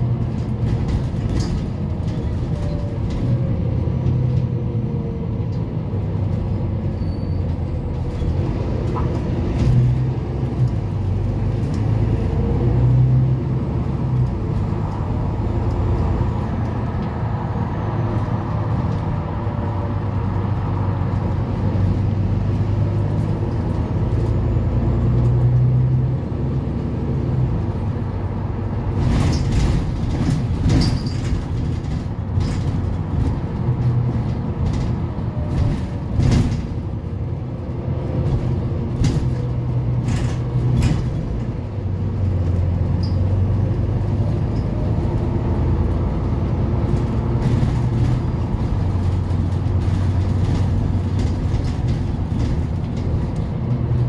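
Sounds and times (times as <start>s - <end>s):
bus diesel engine droning: 0.0s - 54.0s
road noise: 0.0s - 54.0s
sharp rattles and knocks: 0.1s - 4.5s, 28.8s - 43.5s, 46.2s - 54.0s.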